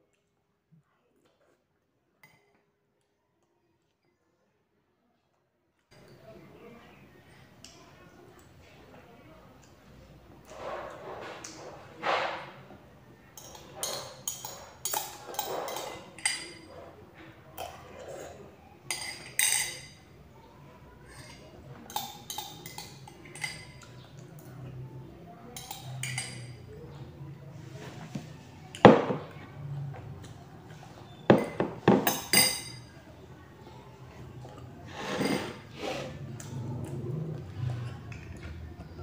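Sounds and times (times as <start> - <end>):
metal spoon clinking on glass: 18.9 - 20.0, 31.4 - 32.9.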